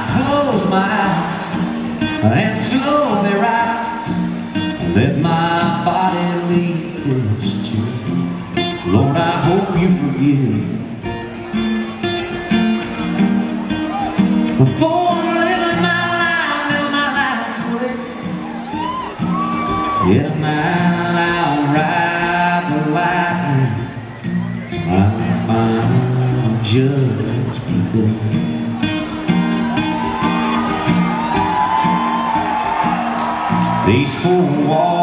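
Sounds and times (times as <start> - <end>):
man singing: 0.0 - 11.0, 14.6 - 18.2, 19.9 - 24.1, 24.7 - 28.6, 33.8 - 35.0
acoustic guitar: 0.0 - 35.0.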